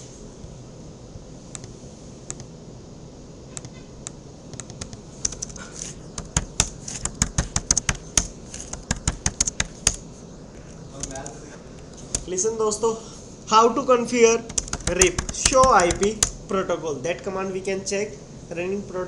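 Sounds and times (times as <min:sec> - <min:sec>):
typing on a computer keyboard: 0:04.6 - 0:10.0, 0:12.0 - 0:12.3, 0:14.4 - 0:16.4.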